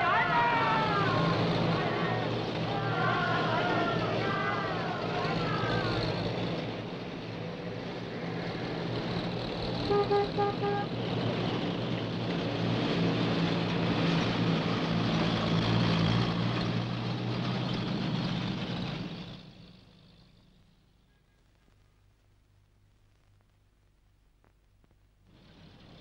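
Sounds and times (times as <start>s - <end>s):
truck engine driving past: 0.0s - 21.0s
truck horn toots: 9.8s - 11.1s.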